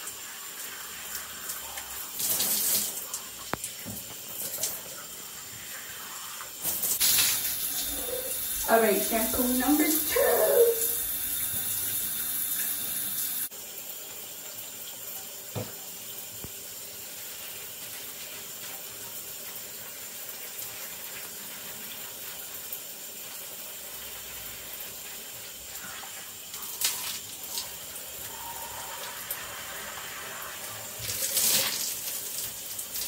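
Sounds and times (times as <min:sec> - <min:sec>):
shower spray splashing: 0:00.0 - 0:13.5, 0:24.0 - 0:33.0.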